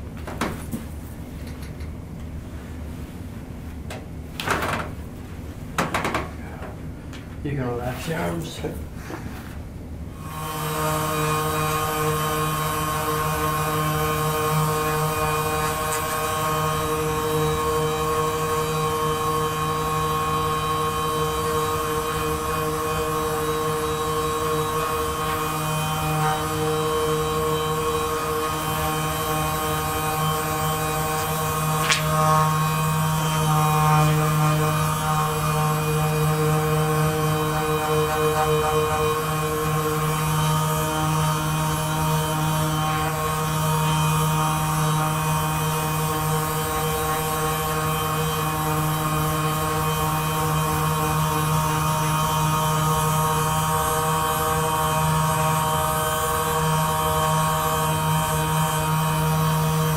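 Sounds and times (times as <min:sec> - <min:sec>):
massage gun buzzing: 0:10.2 - 0:59.9.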